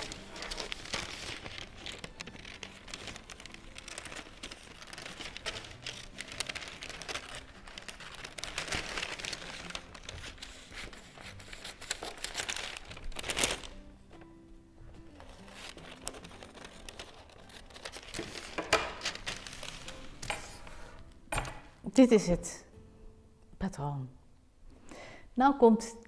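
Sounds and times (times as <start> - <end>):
paper crinkling and rustling: 0.0 - 14.3, 15.0 - 21.0.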